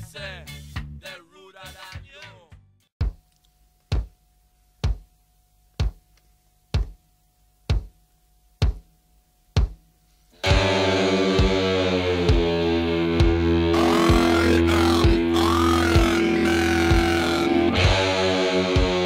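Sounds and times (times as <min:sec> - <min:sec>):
deep drum beat: 0:07.7 - 0:08.0
band with guitar: 0:10.4 - 0:19.0.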